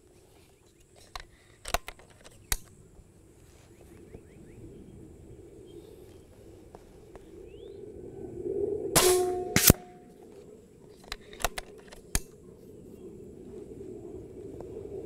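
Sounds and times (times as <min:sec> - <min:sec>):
air rifle shot crack: 0:09.0 - 0:10.1
loud sharp report: 0:09.0 - 0:10.1.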